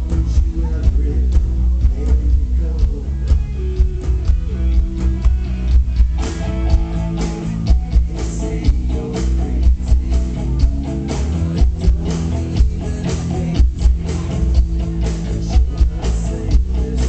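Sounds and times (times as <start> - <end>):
heavy low bass: 0.0 - 17.0
strummed guitars: 0.0 - 17.0
drum hits: 0.1 - 9.0.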